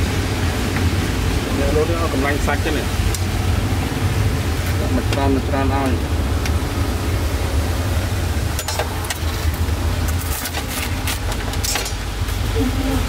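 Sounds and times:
traffic engine rumble: 0.0 - 13.0
clicks and clatter: 8.6 - 12.1.

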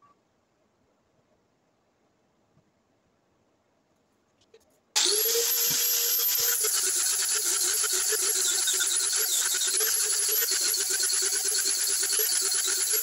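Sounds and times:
angle grinder grinding wood: 5.0 - 13.0.

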